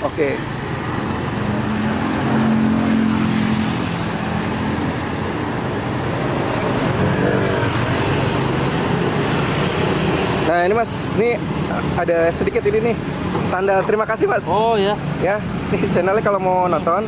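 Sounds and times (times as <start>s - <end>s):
vehicle engine humming: 0.0s - 16.7s
road traffic: 0.0s - 17.0s.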